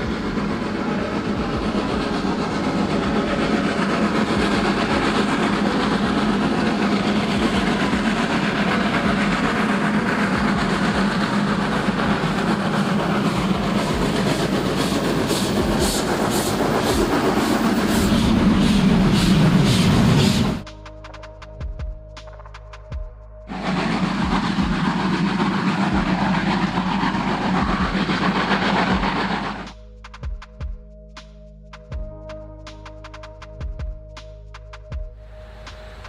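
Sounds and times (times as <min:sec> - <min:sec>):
steam locomotive running: 0:00.0 - 0:21.6, 0:23.5 - 0:29.9, 0:35.2 - 0:36.0
locomotive exhaust beat: 0:00.0 - 0:36.0.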